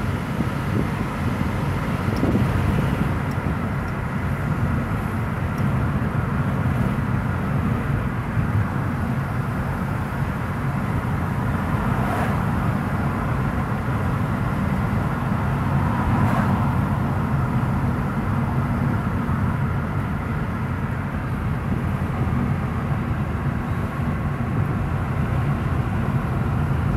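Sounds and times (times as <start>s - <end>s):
car road and engine noise: 0.0s - 26.9s.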